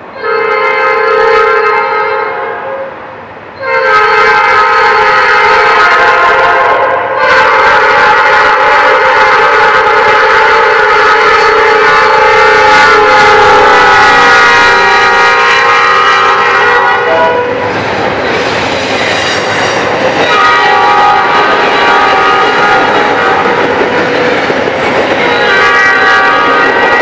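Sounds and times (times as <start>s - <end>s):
train wheels on rails: 0.0s - 27.0s
locomotive air horn blasts: 0.2s - 3.0s, 3.6s - 17.6s, 20.3s - 23.6s, 25.2s - 27.0s.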